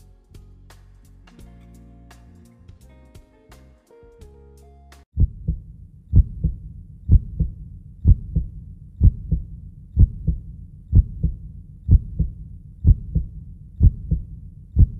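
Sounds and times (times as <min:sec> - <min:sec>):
heartbeat thumps: 0:05.2 - 0:14.9.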